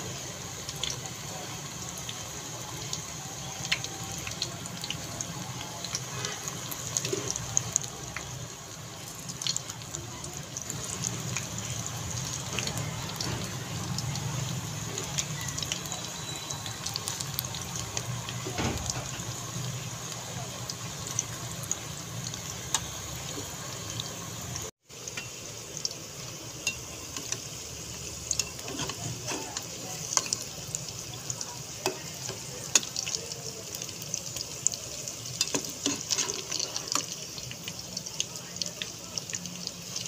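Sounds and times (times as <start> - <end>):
food deep-frying in hot oil: 0.0 - 40.0
spoon stirring in oil: 5.8 - 8.4, 26.3 - 37.9.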